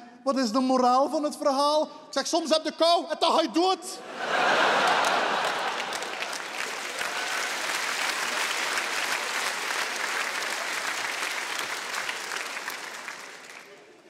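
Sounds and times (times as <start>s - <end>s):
audience applauding: 4.2s - 14.0s.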